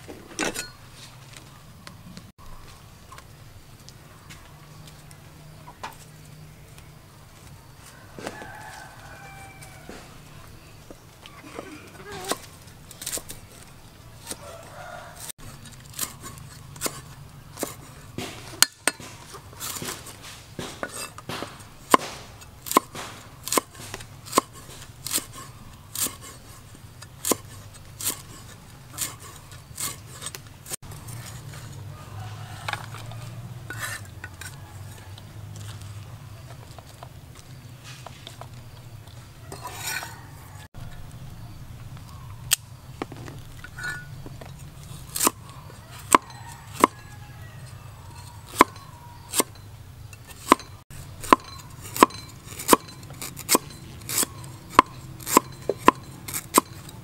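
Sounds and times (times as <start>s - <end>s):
cleaver chopping on wooden block: 17.6s - 25.4s, 46.1s - 47.0s, 48.5s - 49.5s, 50.4s - 56.8s.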